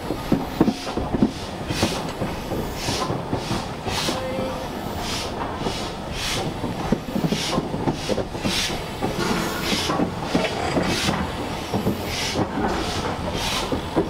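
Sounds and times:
steam locomotive chuffing: 0.0 - 14.0
wheels and carriages rattling: 6.8 - 14.0.

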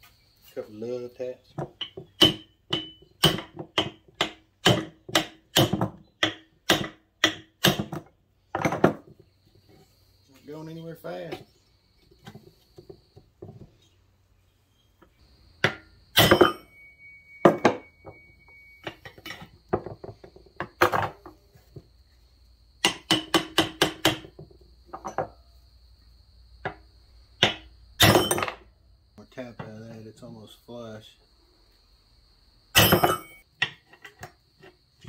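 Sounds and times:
hammer striking steel: 2.2 - 7.8, 15.6 - 18.5.

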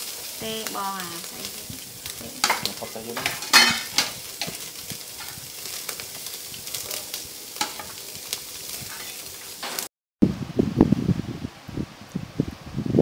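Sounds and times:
fat crackling and popping: 0.0 - 9.9
meat sizzling on a grill: 0.0 - 9.9.

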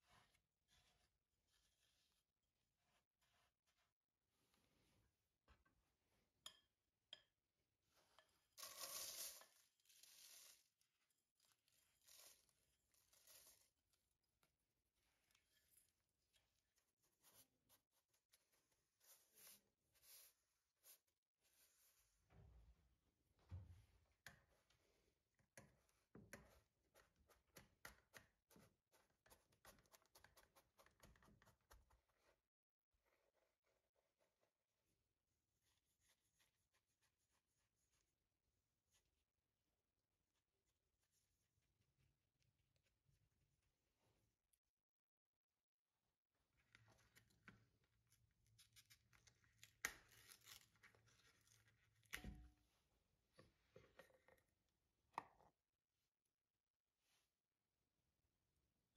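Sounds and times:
crumbs rustling on baking paper: 8.6 - 13.9.

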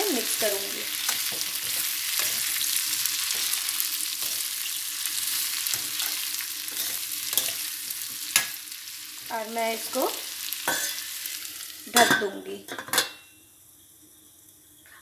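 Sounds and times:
oil sizzling in pan: 0.0 - 15.0
metal spatula scraping pan: 1.0 - 8.6, 10.6 - 13.2.

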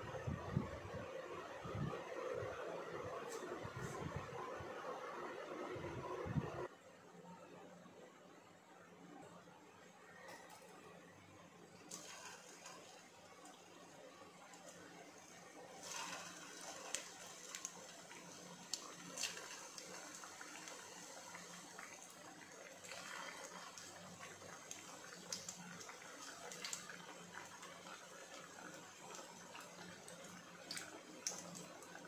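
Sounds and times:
food sizzling in hot oil: 15.6 - 32.0.

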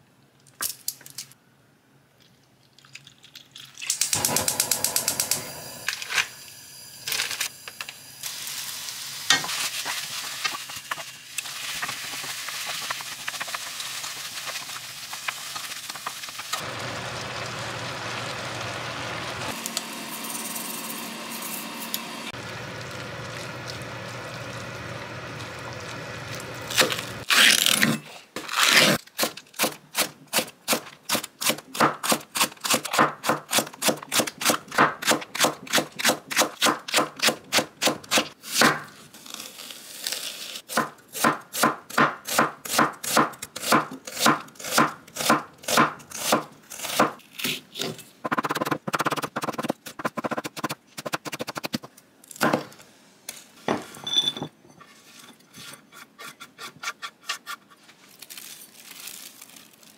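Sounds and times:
stir-frying sizzle: 4.2 - 27.2.

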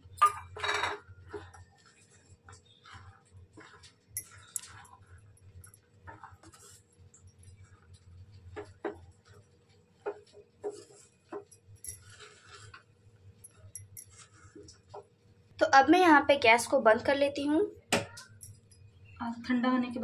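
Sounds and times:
spatula scraping a steel pan: 12.0 - 12.8.

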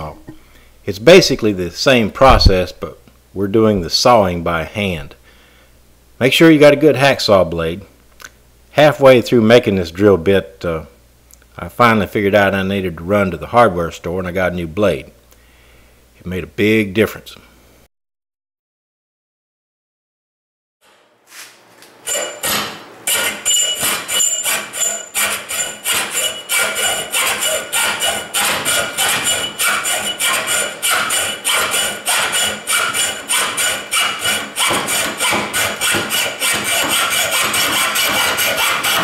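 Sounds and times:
metal ringing tone: 22.1 - 22.7, 23.4 - 26.5
hacksaw cutting metal pipe: 22.1 - 39.0.

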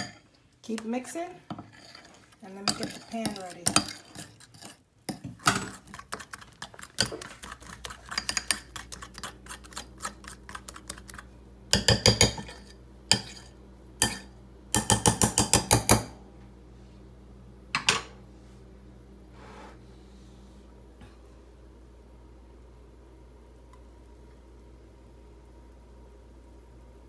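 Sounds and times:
fork beating batter in bowl: 0.0 - 16.1.

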